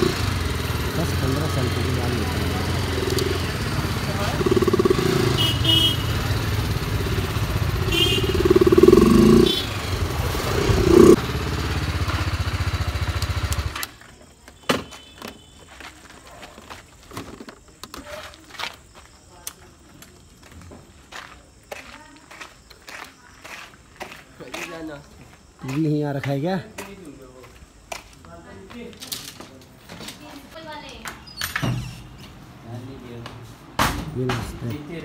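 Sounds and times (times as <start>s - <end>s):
motorcycle engine running: 0.0s - 13.8s
horn blasts: 4.8s - 10.0s.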